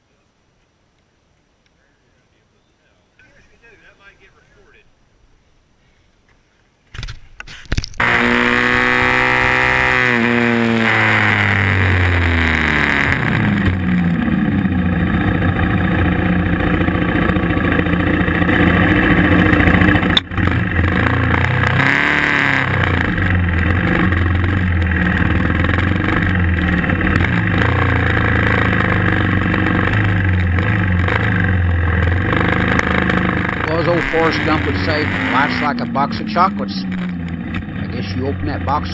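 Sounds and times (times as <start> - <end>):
motorcycle engine running: 8.0 - 38.9.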